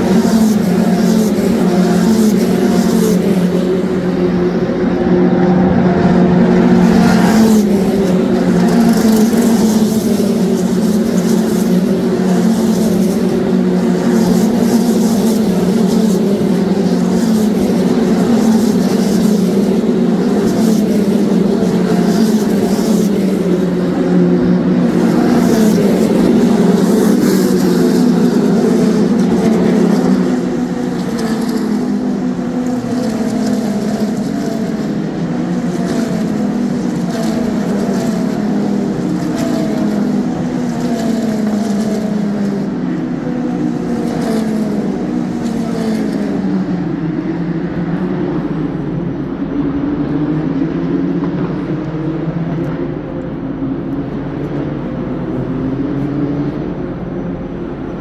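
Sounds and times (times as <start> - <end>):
race car engines: 0.0 - 58.0.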